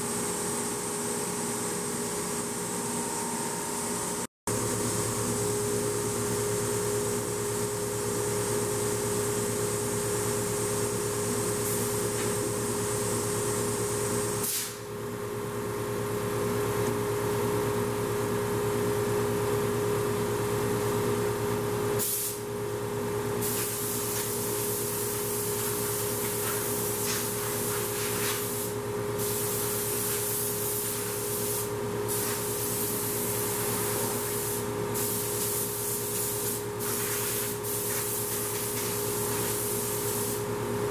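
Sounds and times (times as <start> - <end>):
compressed air hose hissing: 14.4 - 14.8, 22.0 - 22.4, 23.4 - 40.4.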